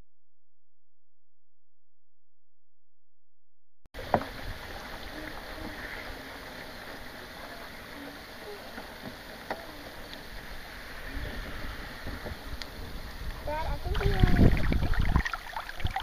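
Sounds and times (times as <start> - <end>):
water lapping: 4.0 - 16.0.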